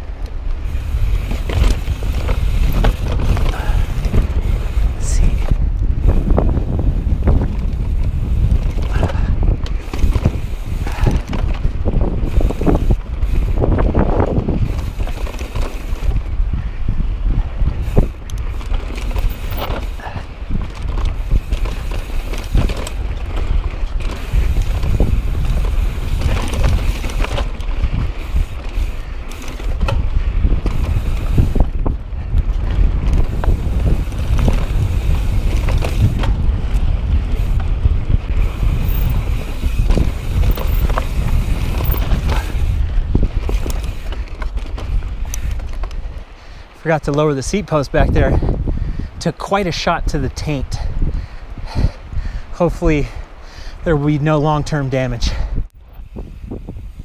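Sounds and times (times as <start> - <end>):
bike tyres and frame rattling: 0.0 - 57.0
wind buffeting microphone: 0.0 - 57.0.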